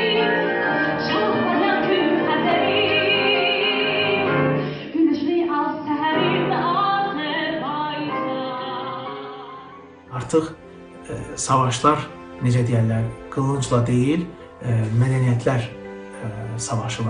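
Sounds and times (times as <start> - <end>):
woman singing operatically: 0.0 - 9.8
piano accompaniment: 0.0 - 17.0.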